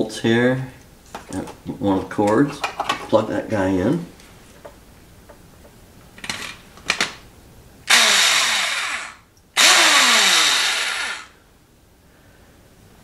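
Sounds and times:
electric starter motor whirring: 7.9s - 11.4s.

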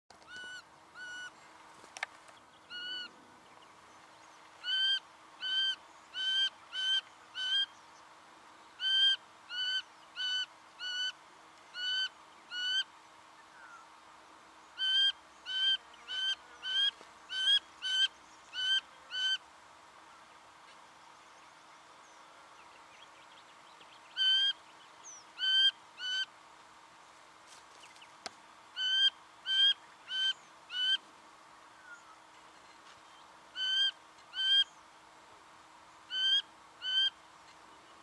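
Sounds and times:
bird calling nasal notes: 2.6s - 3.2s, 4.6s - 7.8s, 8.8s - 12.9s, 24.0s - 26.3s, 28.8s - 31.0s, 33.5s - 34.8s, 36.1s - 37.2s.

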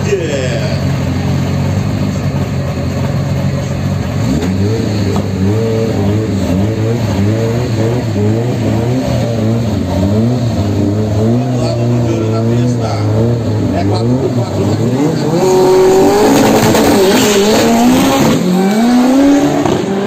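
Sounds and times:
race car engines revving: 0.0s - 20.0s.

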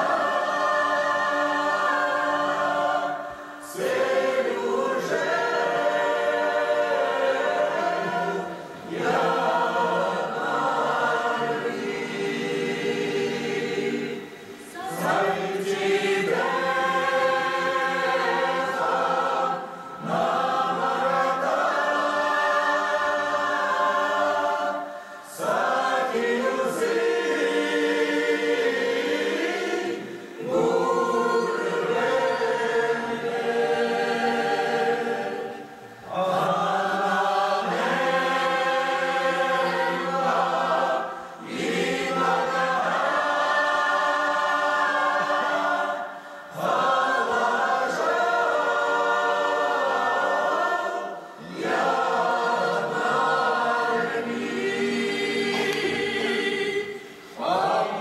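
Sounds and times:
mixed choir singing: 0.0s - 58.0s.

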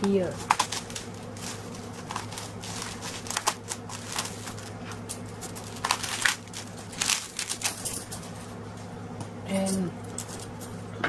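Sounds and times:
knife crunching through cabbage: 0.3s - 7.9s.

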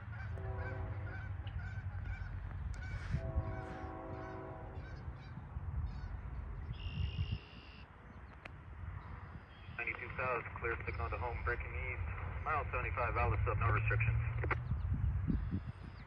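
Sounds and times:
locomotive air horn blasts: 0.3s - 2.2s, 2.8s - 5.1s.

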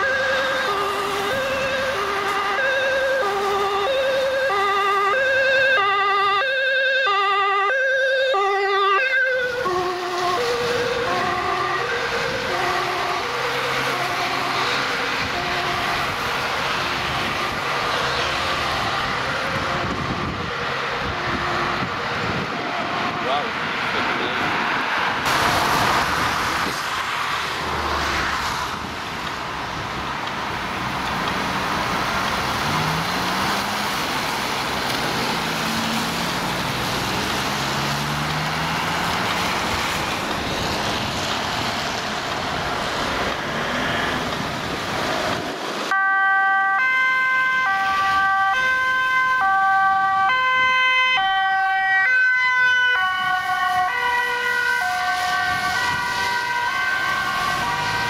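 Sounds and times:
ambulance two-tone siren: 0.0s - 23.8s, 45.8s - 58.0s
vehicle engine passing: 0.0s - 45.9s, 47.0s - 58.0s
road traffic noise: 0.0s - 58.0s.

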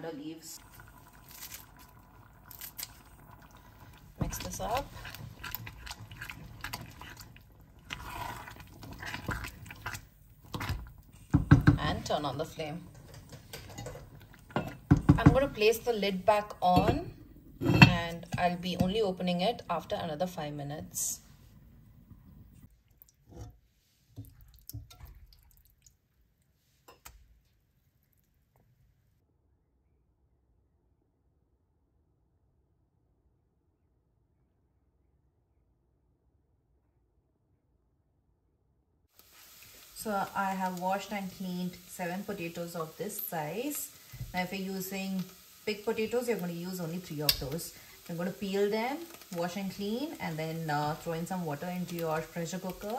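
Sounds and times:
wet squelching stirring: 0.6s - 19.2s, 22.4s - 28.6s, 45.2s - 52.9s
spoon scraping pot and bowl: 4.2s - 12.3s, 12.9s - 15.7s.

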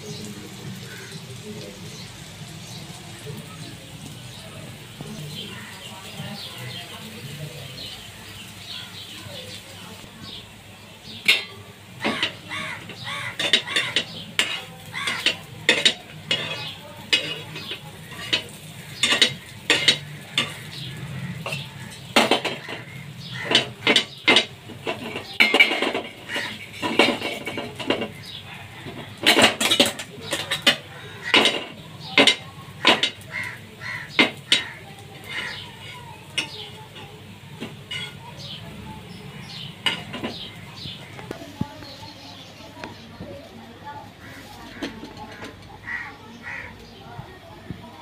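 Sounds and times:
metal spatula scraping frying pan: 11.2s - 33.3s, 37.6s - 38.4s.

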